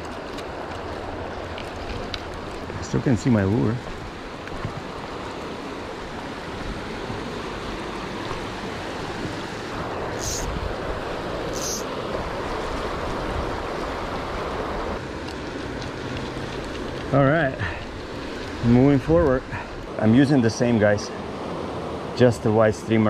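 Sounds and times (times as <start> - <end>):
river rapids rushing: 0.0 - 23.0
brief high hisses: 10.2 - 10.5, 11.5 - 11.9.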